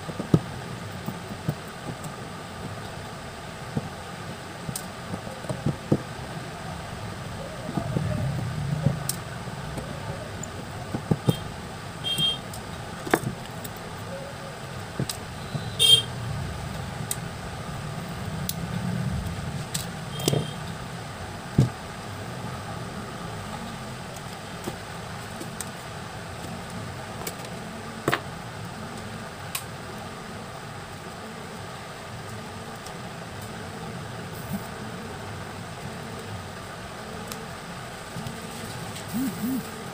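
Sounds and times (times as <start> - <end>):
road traffic rumble: 0.0 - 39.9
car horn toot: 11.2 - 12.4, 15.4 - 16.1, 20.1 - 20.6.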